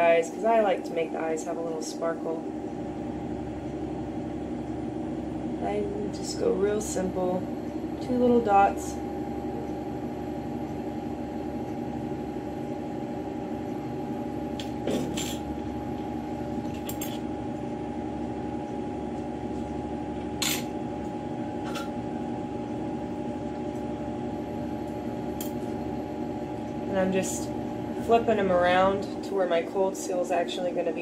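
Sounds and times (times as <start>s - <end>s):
droning equipment hum: 0.0s - 31.0s.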